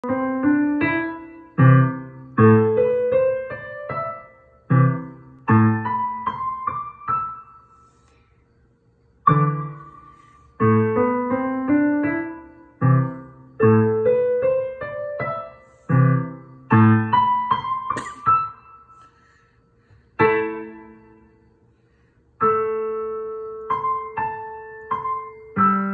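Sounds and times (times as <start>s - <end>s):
child playing digital piano: 0.0s - 8.1s, 9.2s - 19.0s, 20.2s - 21.4s, 22.4s - 25.9s.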